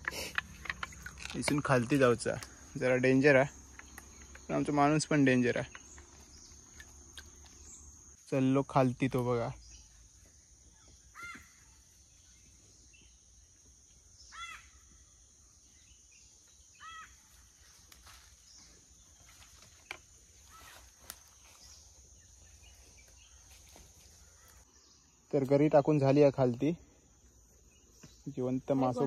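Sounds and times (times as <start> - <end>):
faint insect hiss: 0.0 - 29.0
bird calling: 9.5 - 13.2, 14.1 - 25.3.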